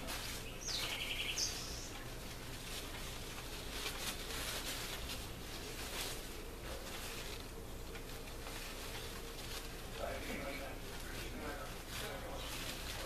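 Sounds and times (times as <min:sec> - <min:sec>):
crepe paper rustling: 0:00.0 - 0:13.0
bird chirp: 0:00.4 - 0:02.0.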